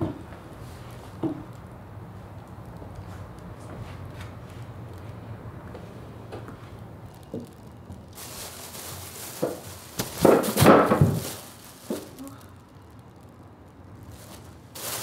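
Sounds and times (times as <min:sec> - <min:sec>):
plastic bags rustling: 0:07.3 - 0:13.2, 0:13.8 - 0:15.0.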